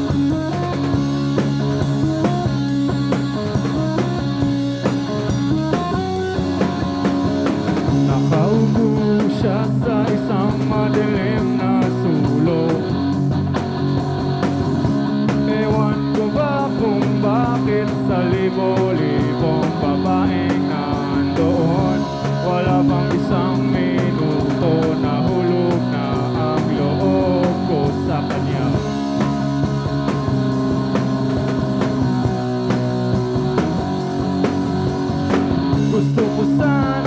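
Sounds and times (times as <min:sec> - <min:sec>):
distorted electric guitar chords: 0:00.0 - 0:37.0
drum kit beat: 0:00.0 - 0:37.0
man singing: 0:07.9 - 0:13.0, 0:15.3 - 0:29.0, 0:35.8 - 0:37.0.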